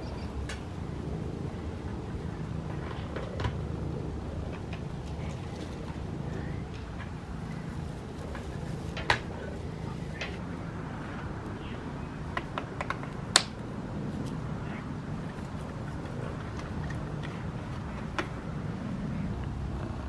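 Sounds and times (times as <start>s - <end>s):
cat purring: 13.9s - 20.0s.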